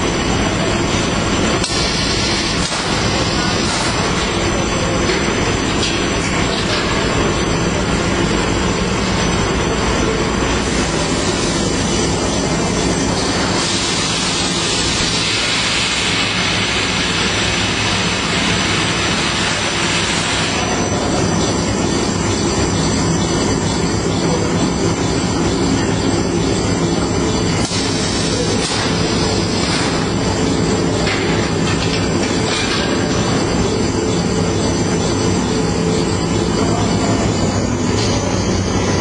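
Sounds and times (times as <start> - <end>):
machinery running: 0.0 - 39.0.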